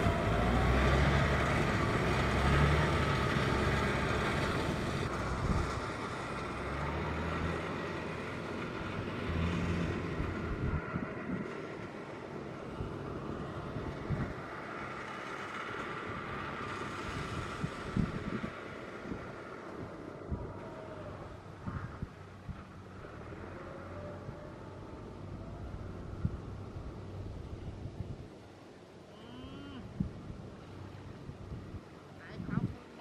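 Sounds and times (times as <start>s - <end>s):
machine engine: 0.0s - 26.4s.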